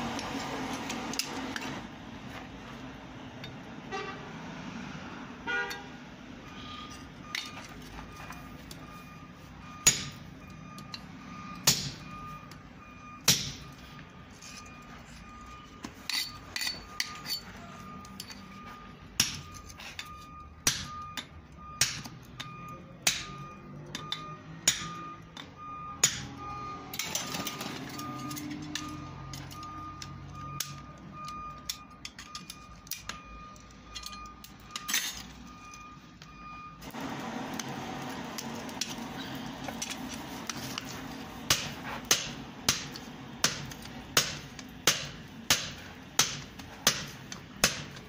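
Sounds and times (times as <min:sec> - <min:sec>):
hammer striking steel on anvil: 0:09.8 - 0:10.3, 0:11.6 - 0:12.1, 0:13.2 - 0:13.8, 0:19.2 - 0:19.6, 0:20.6 - 0:26.4, 0:41.4 - 0:48.0.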